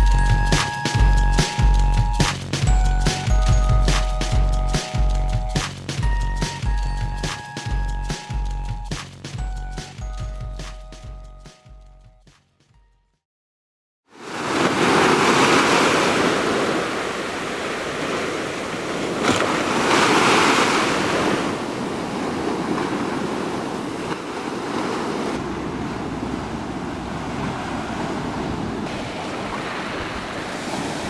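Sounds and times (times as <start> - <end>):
small waves breaking on beach: 14.1 - 31.0.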